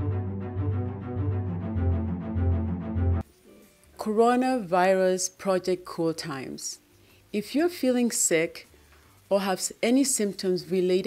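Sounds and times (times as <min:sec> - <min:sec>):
news theme music: 0:00.0 - 0:03.2.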